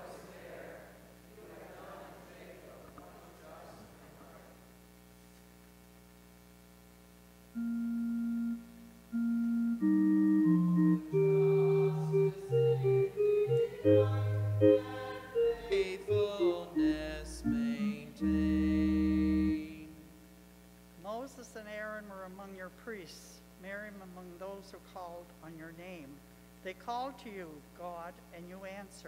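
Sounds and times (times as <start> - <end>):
organ playing: 7.6 - 20.0
person singing: 11.0 - 20.1.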